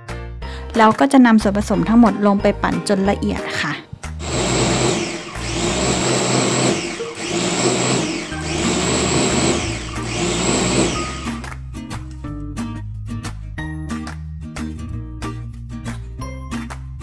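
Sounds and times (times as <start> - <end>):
food chopper motor whirring: 4.2 - 11.6.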